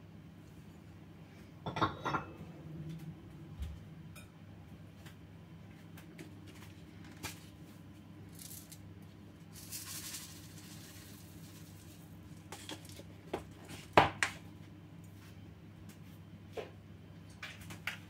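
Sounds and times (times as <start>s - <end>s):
seeds trickling into a bowl: 8.3s - 8.8s, 9.4s - 13.0s.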